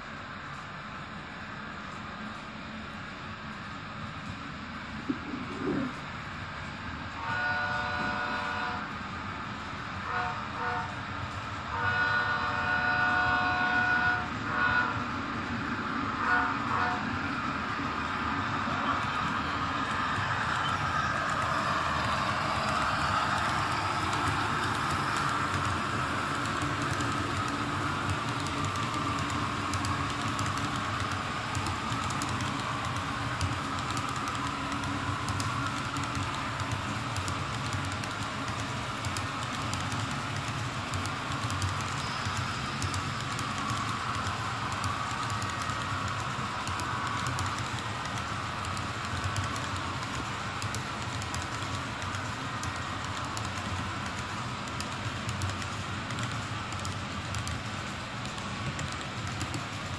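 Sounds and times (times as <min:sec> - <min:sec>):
model train cars rumbling: 0:04.2 - 0:59.9
small wheels clicking over rails: 0:18.9 - 0:59.9.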